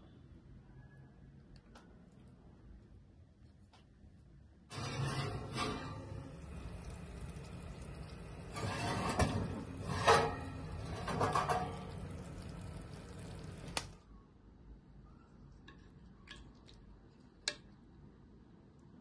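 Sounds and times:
steady hiss and hum: 2.1s - 14.1s
ceramic dish scraping on oven rack: 4.7s - 7.1s, 8.0s - 12.4s.

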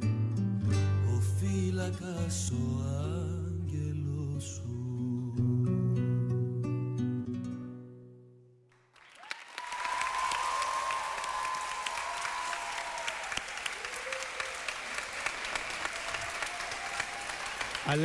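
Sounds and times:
studio audience applause: 8.8s - 18.0s
high cheer: 9.0s - 18.0s.

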